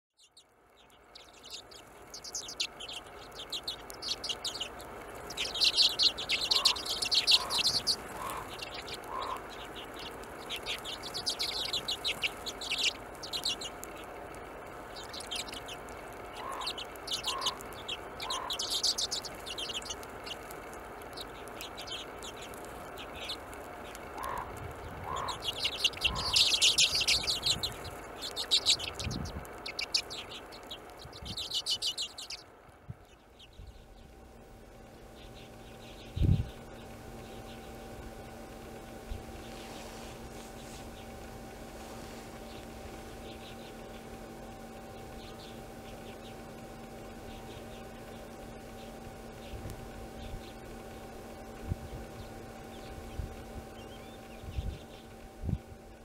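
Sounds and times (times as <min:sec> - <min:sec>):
flock of birds chirping: 0:00.1 - 0:56.0.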